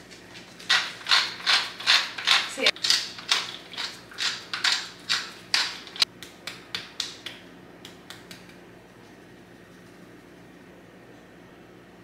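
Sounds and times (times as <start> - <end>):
spice grinder grinding: 0.6 - 6.0.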